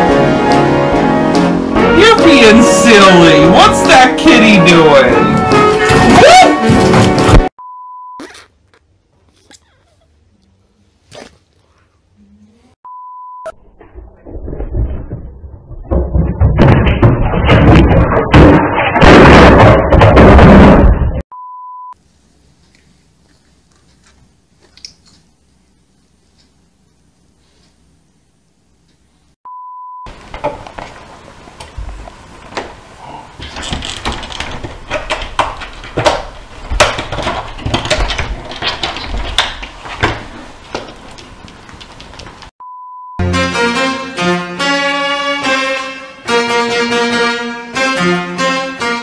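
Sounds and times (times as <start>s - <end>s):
tv falling onto tiled floor: 14.4s - 21.2s, 33.6s - 41.0s.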